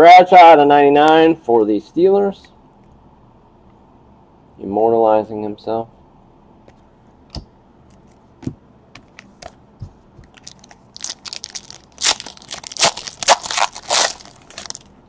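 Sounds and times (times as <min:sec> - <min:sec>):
foil wrapper tearing and crinkling: 0:10.4 - 0:14.9.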